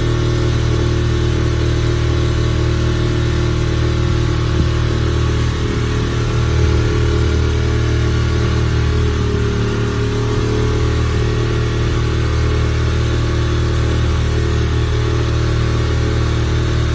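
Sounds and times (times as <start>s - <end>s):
motorboat engine running: 0.0s - 16.9s.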